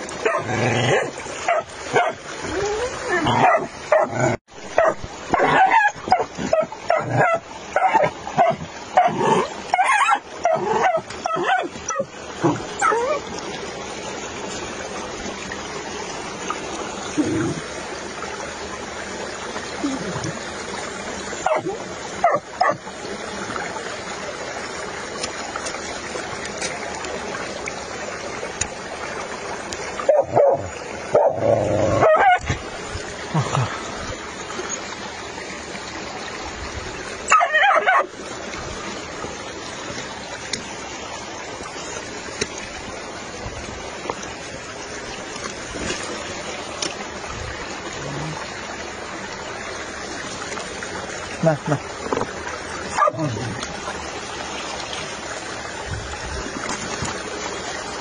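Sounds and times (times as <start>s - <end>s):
mountain stream rushing: 0.0s - 58.0s
dog yelping and barking: 0.2s - 4.2s, 4.8s - 13.2s, 21.4s - 22.8s, 30.1s - 31.4s, 32.0s - 32.5s, 37.3s - 38.1s, 52.9s - 53.2s.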